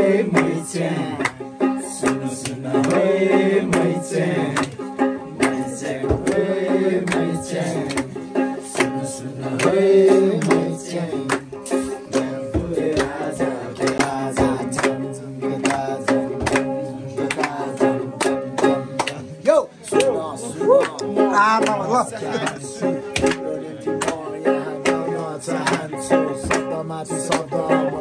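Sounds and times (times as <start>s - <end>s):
plucked-string melody: 0.0s - 28.0s
drum beat: 5.4s - 8.0s, 9.6s - 17.4s.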